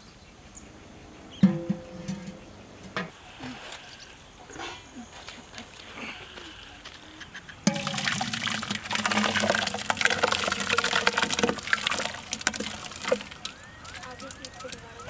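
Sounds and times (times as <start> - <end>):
thick sauce pouring into pot: 7.7 - 13.5.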